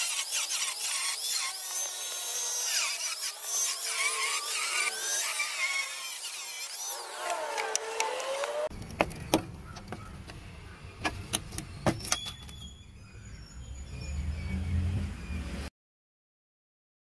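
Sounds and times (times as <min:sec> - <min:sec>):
angle grinder whining: 0:00.0 - 0:08.7
sharp clicks and knocks: 0:07.3 - 0:10.4.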